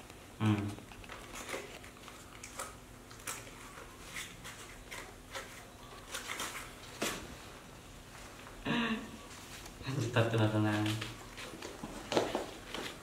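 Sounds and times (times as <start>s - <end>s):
monkeys eating clicks and rustles: 0.6s - 6.8s.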